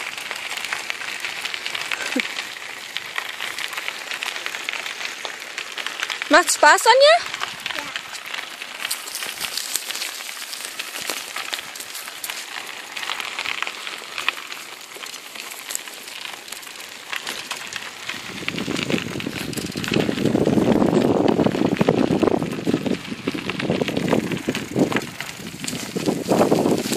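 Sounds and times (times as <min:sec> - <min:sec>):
bicycle tyres crunching on gravel: 0:00.0 - 0:26.9
uneven rumble: 0:10.8 - 0:26.9.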